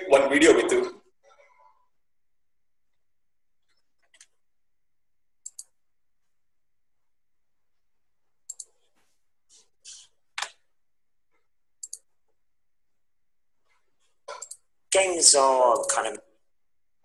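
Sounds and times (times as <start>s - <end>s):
computer mouse clicks: 5.4s - 5.8s, 8.5s - 8.8s, 11.8s - 12.1s, 14.3s - 14.7s.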